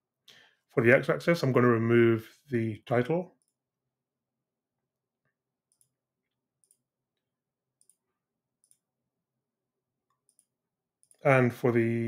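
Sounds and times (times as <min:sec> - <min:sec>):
computer mouse clicks: 0:05.7 - 0:06.0, 0:06.6 - 0:06.9, 0:07.8 - 0:08.9, 0:10.1 - 0:11.2.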